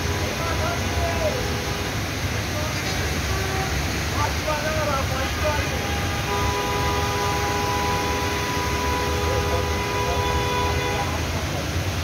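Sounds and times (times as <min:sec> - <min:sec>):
floodwater rushing: 0:00.0 - 0:12.0
vehicle horn blast: 0:03.0 - 0:03.9, 0:05.7 - 0:11.2.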